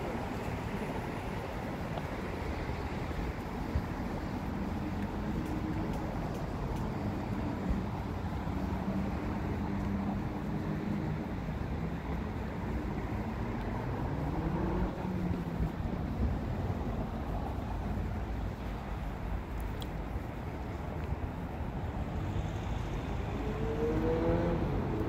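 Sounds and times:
traffic engines rumbling: 0.0 - 25.0
engine speeding up: 13.8 - 15.8, 22.5 - 25.0.

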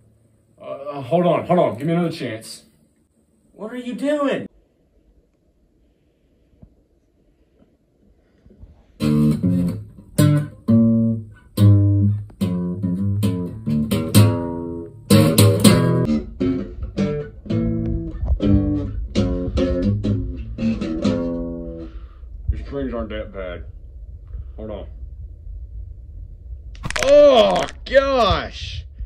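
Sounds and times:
acoustic guitar strumming: 9.0 - 22.2.

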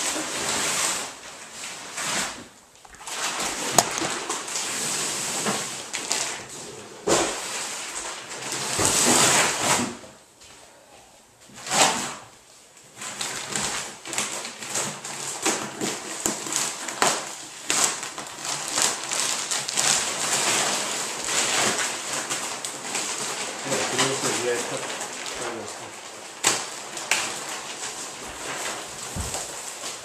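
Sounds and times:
thick plastic wrapping crinkling: 0.0 - 10.1, 11.5 - 30.0.

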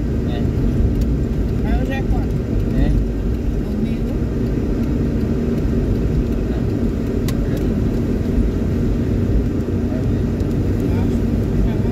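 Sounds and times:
car engine and tyres on wet road: 0.0 - 11.9
sharp tick: 0.8 - 9.7.

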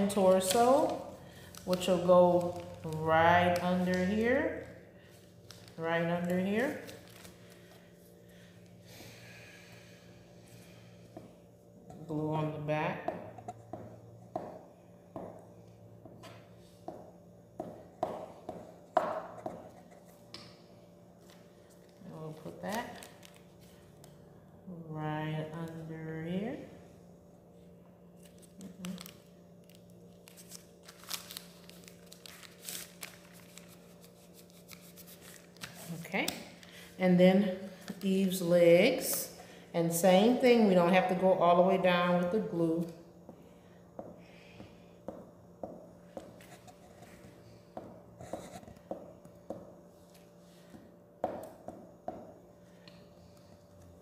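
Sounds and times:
steady low hum: 0.0 - 54.0
paper rustling and rubbing: 6.5 - 7.6, 30.2 - 36.1.

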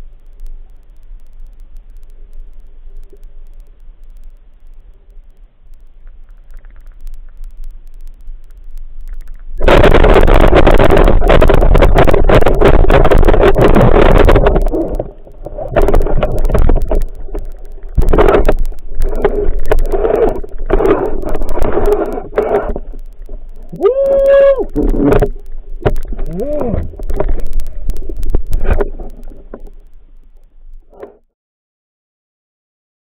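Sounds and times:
water rushing and bubbling: 9.0 - 30.1.

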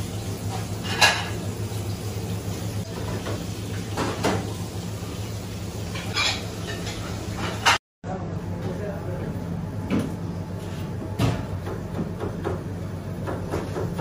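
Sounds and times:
crockery and utensils clinking: 5.9 - 7.8.

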